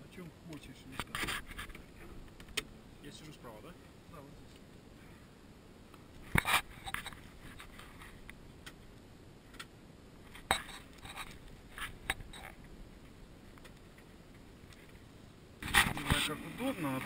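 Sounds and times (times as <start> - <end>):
faint clicks taps and scrapes: 0.5 - 2.7, 5.9 - 8.8, 10.3 - 15.0.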